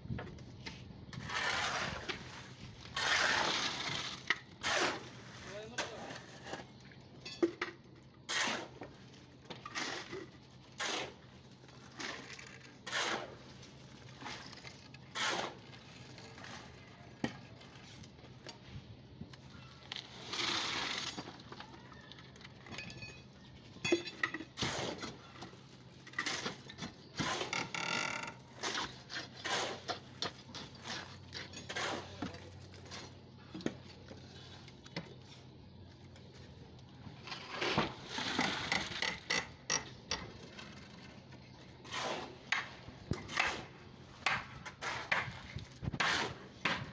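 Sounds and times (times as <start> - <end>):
concrete pouring into form: 1.2 - 6.2, 20.1 - 21.5
tools knocking and scraping: 37.3 - 41.2.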